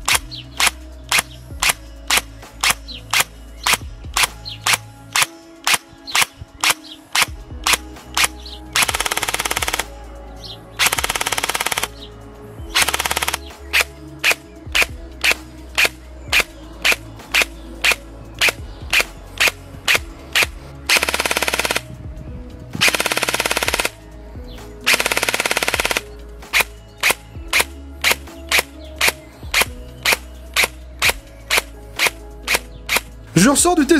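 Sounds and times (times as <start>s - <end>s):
airsoft rifle firing: 0.0s - 9.9s, 10.8s - 12.0s, 12.7s - 21.9s, 22.8s - 24.0s, 24.9s - 33.1s.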